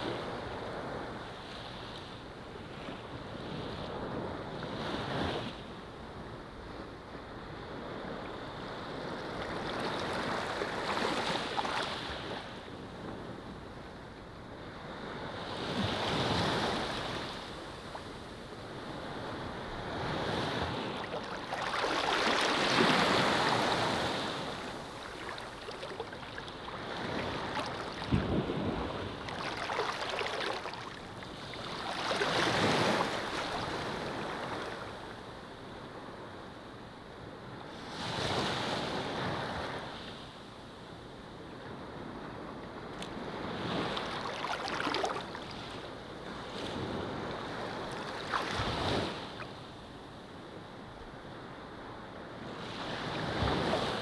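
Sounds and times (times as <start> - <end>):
small waves washing on sand: 7.4 - 13.3, 14.6 - 35.3, 41.8 - 50.4, 52.4 - 54.0.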